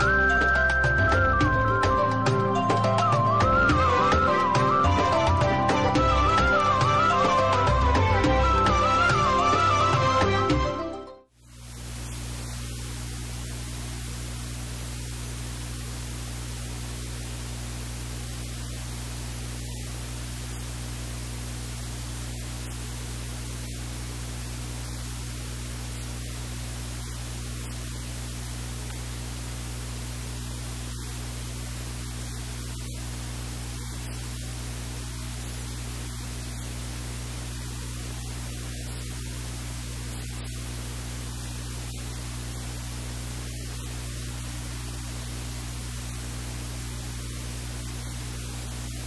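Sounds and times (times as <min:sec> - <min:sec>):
low electrical hum: 0:11.4 - 0:49.0
steady hiss: 0:11.4 - 0:49.0.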